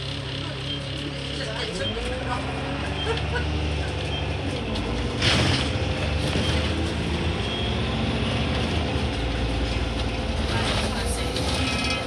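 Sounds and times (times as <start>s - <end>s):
bus engine running: 0.0s - 12.0s.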